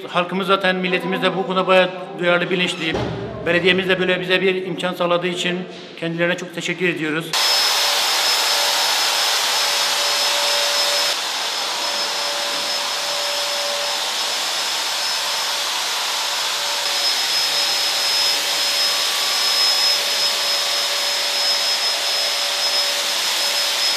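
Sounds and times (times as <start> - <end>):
fogger motor hissing and whining: 7.4 - 23.9.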